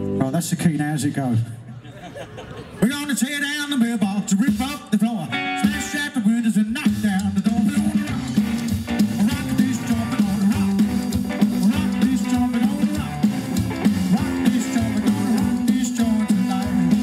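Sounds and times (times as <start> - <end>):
electric guitar: 0.0 - 0.3, 5.2 - 6.2, 7.0 - 17.0
drum kit beat: 4.2 - 6.1, 6.7 - 17.0
double bass: 8.0 - 17.0.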